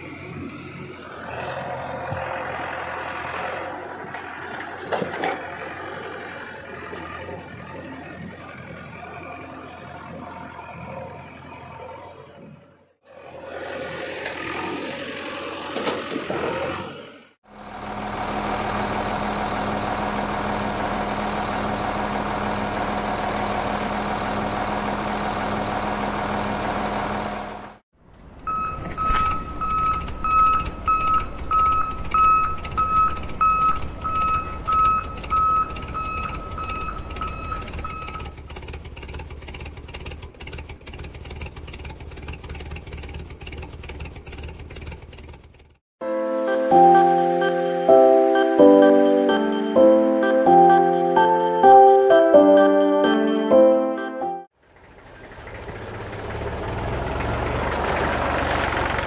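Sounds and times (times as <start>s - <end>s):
low engine rumble: 0.0s - 12.4s, 17.5s - 45.8s, 54.6s - 59.0s
engine drone: 0.0s - 52.4s, 54.6s - 59.0s
truck reversing alarm beeping: 28.4s - 38.4s, 46.2s - 54.2s.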